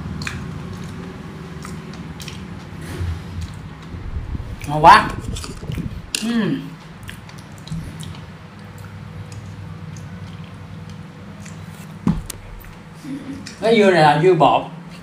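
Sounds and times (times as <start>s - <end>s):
wet chewing and squishing: 0.0s - 2.8s, 6.8s - 13.6s
steady low hum: 0.0s - 13.6s.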